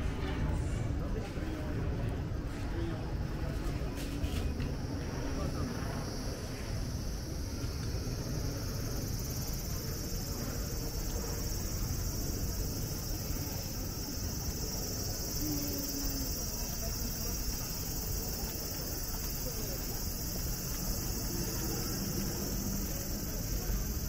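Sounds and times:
street noise: 0.0s - 24.0s
cicadas calling: 4.8s - 24.0s.

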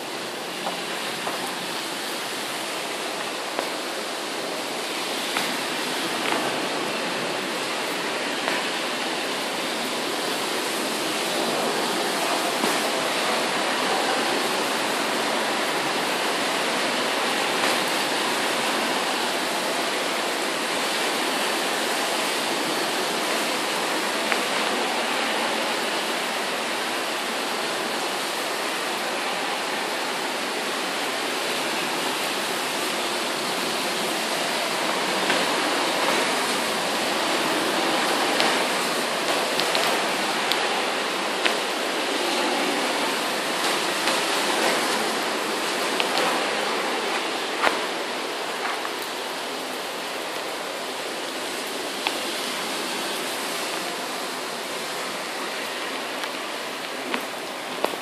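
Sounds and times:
heavy rain pouring: 0.0s - 58.0s.

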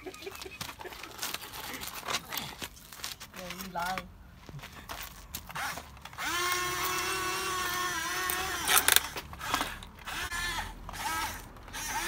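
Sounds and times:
electric motors whining: 5.5s - 12.0s.

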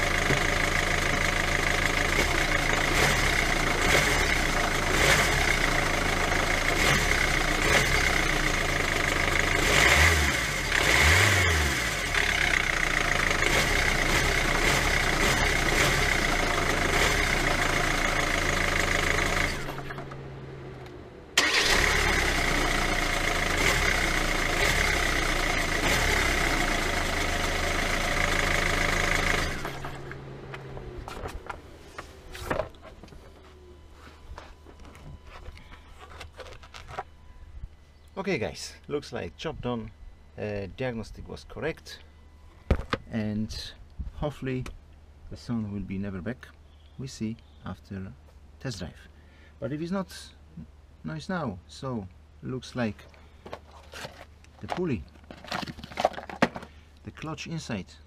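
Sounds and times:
engine revving: 0.0s - 31.1s
diesel engine idling: 0.0s - 32.3s.

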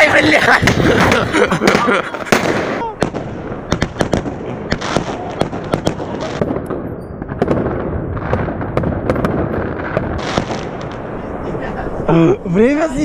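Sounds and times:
fireworks bangs: 0.0s - 13.0s
fireworks crackling hiss: 9.8s - 13.0s.

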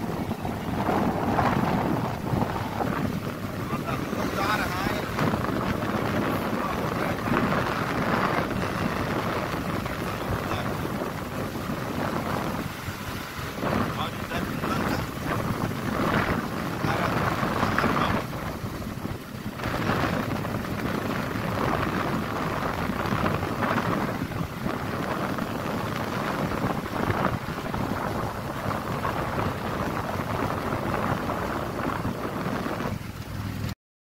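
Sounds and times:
wind buffeting microphone: 0.0s - 33.7s
auto-rickshaw engine: 0.0s - 33.8s
road noise: 0.0s - 33.8s.

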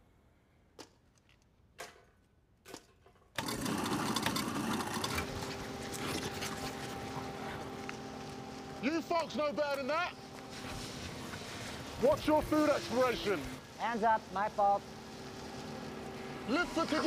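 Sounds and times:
waste-disposal machine whirring: 3.4s - 17.0s.

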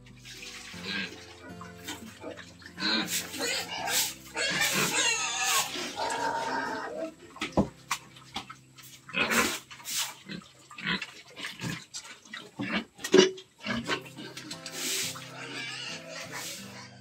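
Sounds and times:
pigs slurping feed: 0.0s - 17.0s
pig grunts: 1.8s - 7.2s, 9.1s - 9.6s, 12.5s - 17.0s.

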